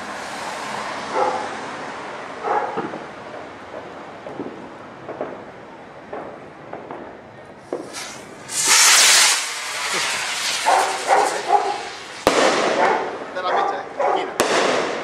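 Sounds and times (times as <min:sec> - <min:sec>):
firework hissing rush: 0:07.6 - 0:13.2.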